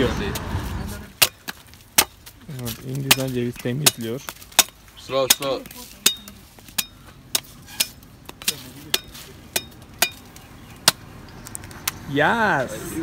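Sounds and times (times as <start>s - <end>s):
blade chopping coconut: 1.1s - 11.0s.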